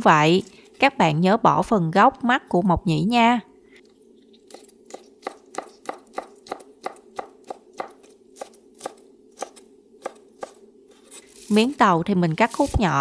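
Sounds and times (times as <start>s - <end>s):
knife chopping on wooden board: 4.5s - 10.6s.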